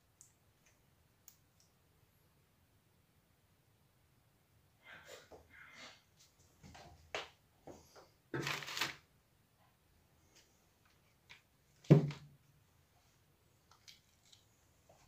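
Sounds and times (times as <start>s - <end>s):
paper rustling: 8.4s - 9.0s.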